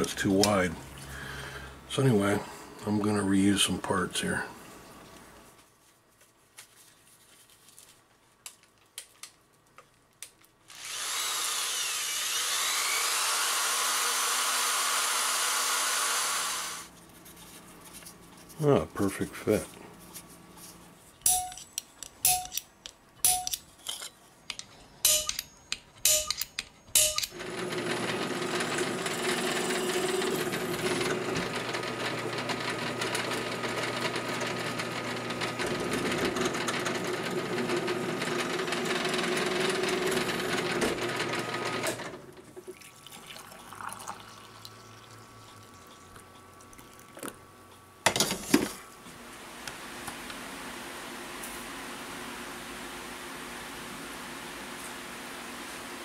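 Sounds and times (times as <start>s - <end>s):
drill press running: 10.7s - 16.9s, 27.0s - 42.3s
sharp metallic clicks: 24.5s - 27.4s.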